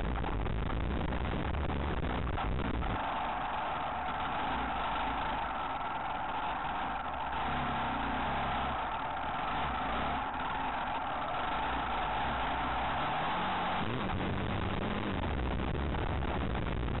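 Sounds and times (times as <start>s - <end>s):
steady rush of noise: 0.0s - 17.0s
motorcycle engine under load: 2.8s - 15.3s.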